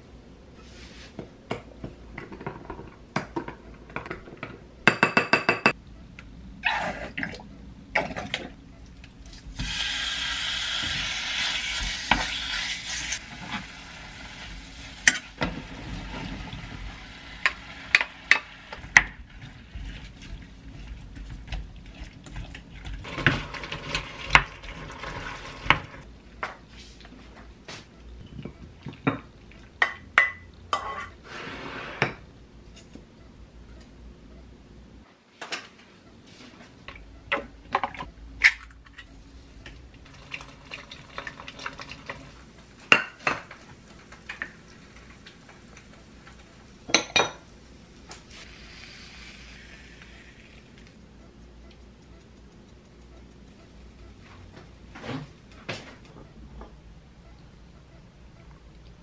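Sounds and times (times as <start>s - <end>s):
meat sizzling in a frying pan: 9.6s - 15.1s.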